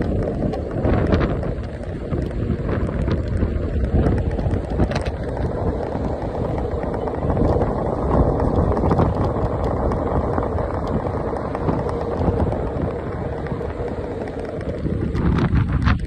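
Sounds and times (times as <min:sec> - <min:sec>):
electric scooter rolling: 0:00.0 - 0:16.0
wind buffeting microphone: 0:00.0 - 0:16.0.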